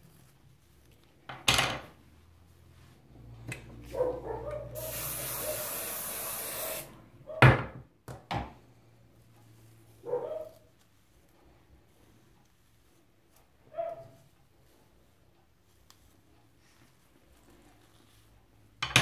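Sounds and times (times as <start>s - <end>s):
aerosol spray hissing: 4.7s - 7.0s.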